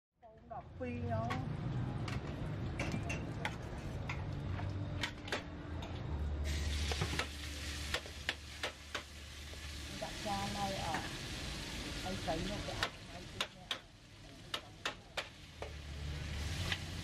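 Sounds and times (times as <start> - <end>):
hot oil sizzling: 6.4 - 17.0.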